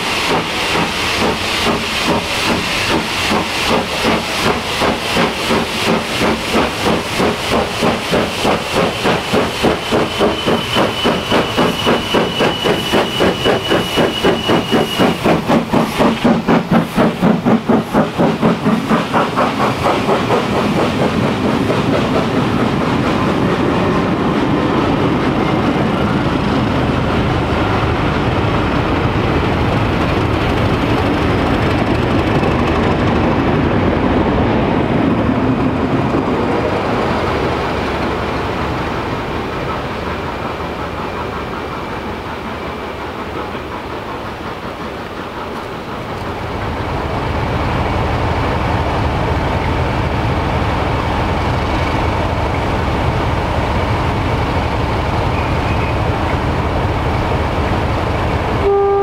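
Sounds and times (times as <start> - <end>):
steam hissing: 0.0 - 32.4
rumble and wheel clatter of coaches: 0.0 - 58.8
steam locomotive exhaust beats: 0.0 - 59.0.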